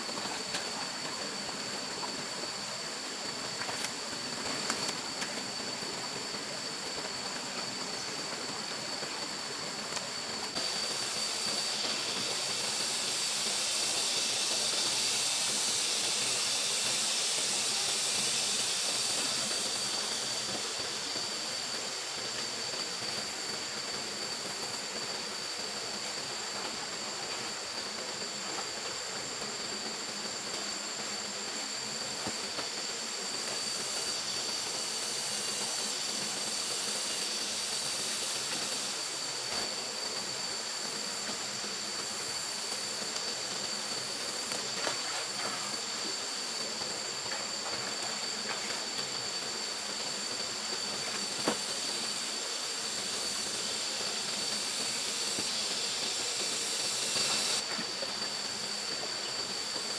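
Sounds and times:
water rushing along a ditch: 0:00.0 - 0:59.9.

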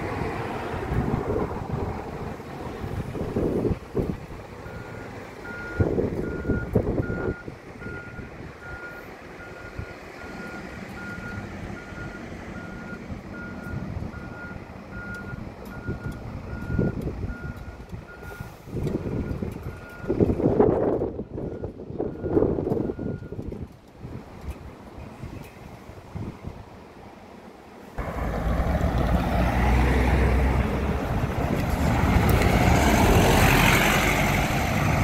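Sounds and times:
wind buffeting microphone: 0:00.0 - 0:04.9, 0:05.6 - 0:08.8, 0:15.3 - 0:26.8, 0:28.0 - 0:35.0
bus engine running: 0:00.0 - 0:35.0
reversing alarm beeping: 0:04.6 - 0:20.2, 0:21.4 - 0:23.4.

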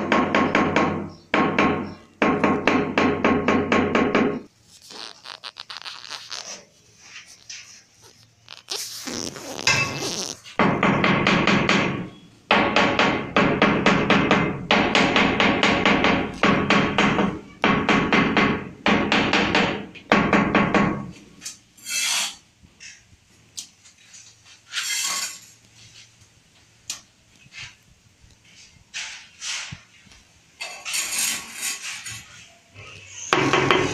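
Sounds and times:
scattered clicks and scrapes: 0:04.6 - 0:10.4.

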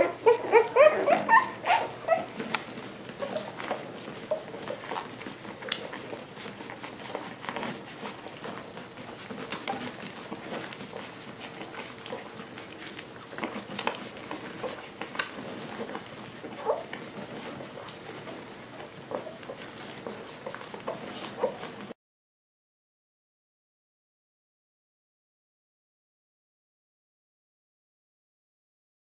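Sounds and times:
puppies squeaking: 0:00.0 - 0:21.8
puppies shuffling and suckling: 0:00.0 - 0:22.0.

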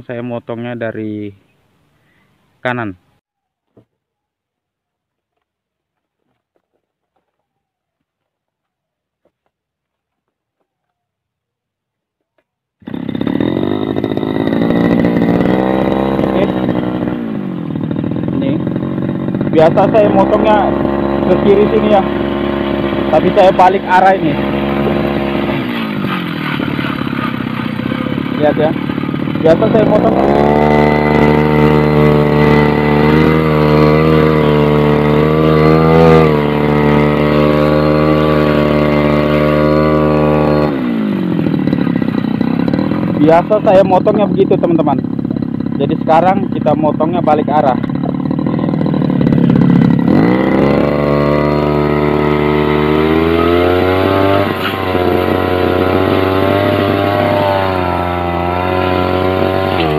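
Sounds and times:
brush cutter engine at high revs: 0:12.8 - 0:59.9.

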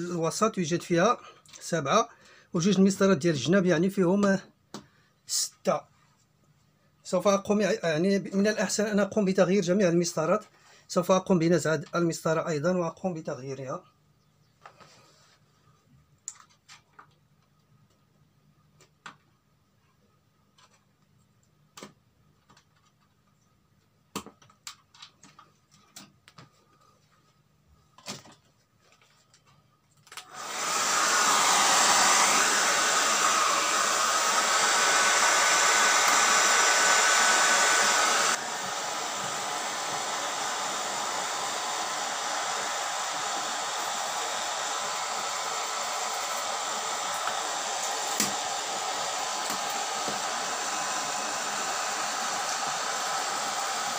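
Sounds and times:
hair dryer blowing: 0:30.2 - 0:53.9.

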